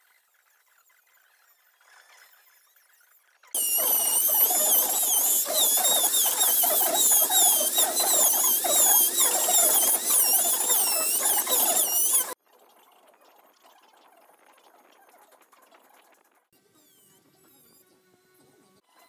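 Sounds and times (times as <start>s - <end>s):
rotary tool grinding wood: 3.6s - 12.4s.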